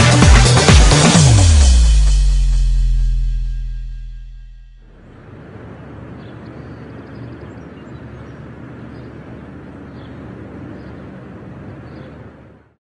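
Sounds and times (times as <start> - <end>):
distant traffic rumble: 4.7 - 12.8.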